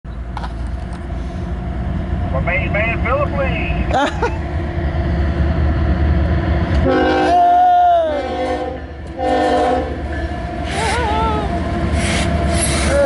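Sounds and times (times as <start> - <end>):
diesel engines rumbling: 0.1 - 13.0
locomotive air horn blasts: 6.8 - 10.0.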